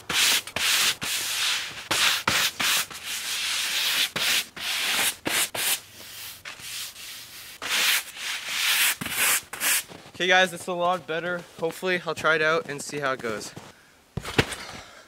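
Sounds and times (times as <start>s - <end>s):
broom sweeping snow: 0.0s - 11.8s.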